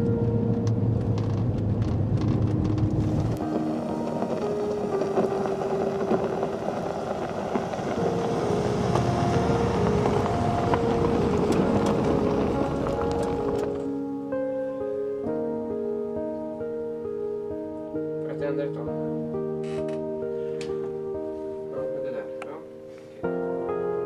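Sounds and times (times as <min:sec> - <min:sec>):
car engine and tyre noise: 0:00.0 - 0:14.6
soft background music: 0:00.0 - 0:24.0.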